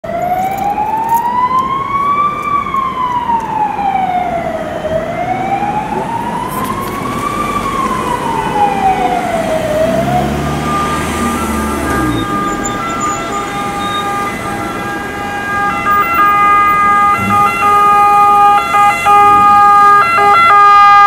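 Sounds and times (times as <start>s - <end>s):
ambulance siren wailing: 0.0s - 21.0s
heavy vehicle engine rumbling: 4.4s - 20.5s.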